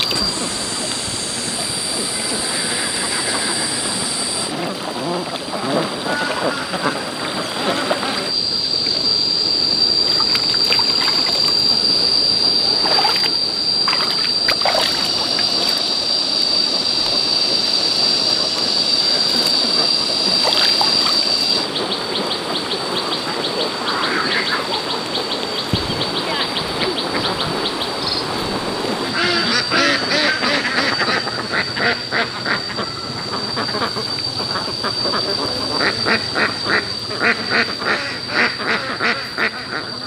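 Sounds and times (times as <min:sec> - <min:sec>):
high-pitched whine: 0:00.0 - 0:40.0
water splashing and trickling: 0:08.8 - 0:16.3, 0:19.0 - 0:21.8.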